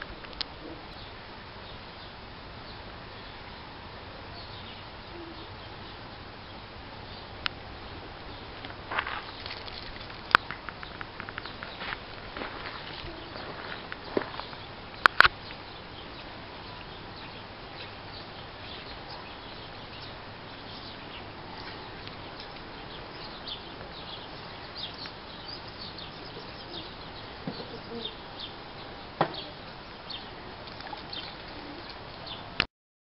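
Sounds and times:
small birds chirping: 0:00.0 - 0:03.6, 0:04.2 - 0:32.6.

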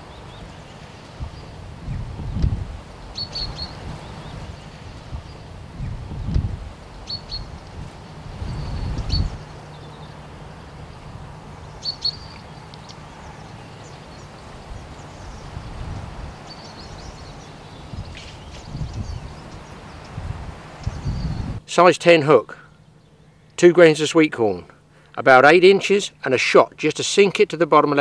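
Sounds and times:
small birds chirping: 0:00.0 - 0:21.6, 0:22.5 - 0:23.6
low rumble: 0:01.2 - 0:13.5.

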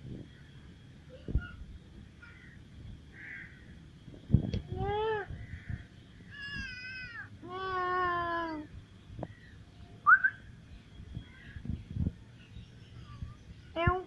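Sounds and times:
cats meowing: 0:06.3 - 0:08.7.

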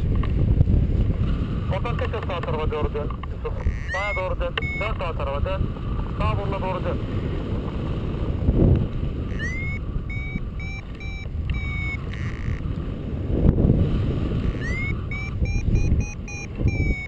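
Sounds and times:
wind rushing over microphone: 0:00.0 - 0:17.0
variometer beeping quick tones: 0:03.6 - 0:05.1, 0:09.3 - 0:12.6, 0:14.5 - 0:17.0.

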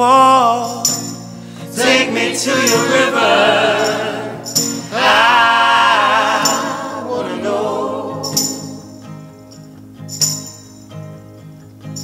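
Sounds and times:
man singing: 0:00.0 - 0:01.0
tambourine: 0:00.6 - 0:05.5, 0:06.2 - 0:07.4, 0:08.1 - 0:12.0
backing choir vocals: 0:01.6 - 0:09.0.

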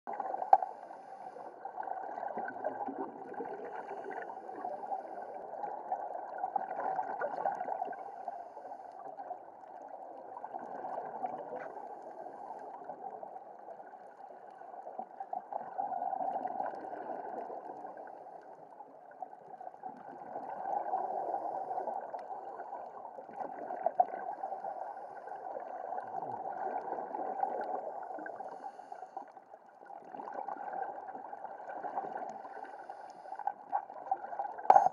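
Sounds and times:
underwater regulator bubbles gurgling: 0:00.1 - 0:28.9, 0:29.8 - 0:34.9.

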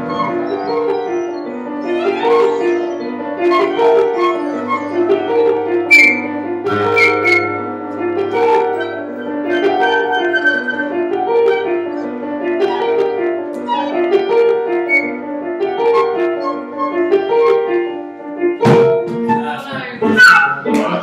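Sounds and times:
woodwind ensemble playing: 0:00.0 - 0:07.7, 0:08.4 - 0:13.0.

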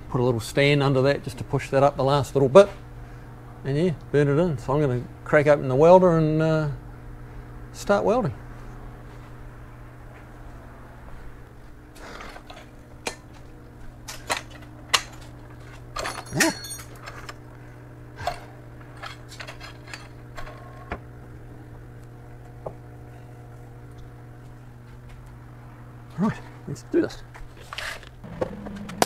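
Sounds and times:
steady low hum: 0:00.0 - 0:29.0
metal stand clanking: 0:14.1 - 0:17.3.

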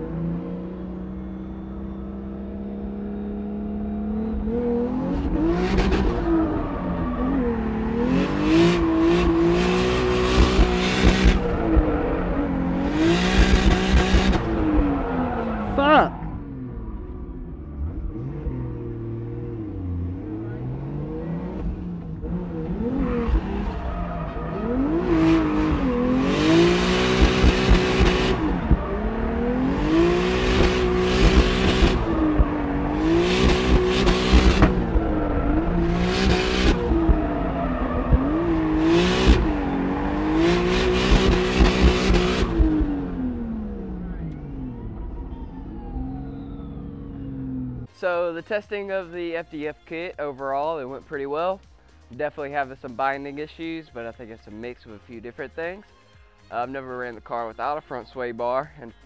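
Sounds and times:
car engine revving hard: 0:00.0 - 0:44.7.

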